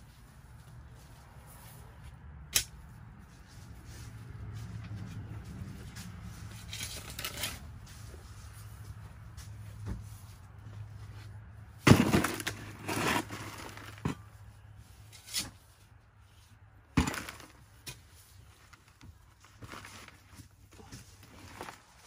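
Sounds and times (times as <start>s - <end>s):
shovel digging in soil: 11.9s - 14.0s.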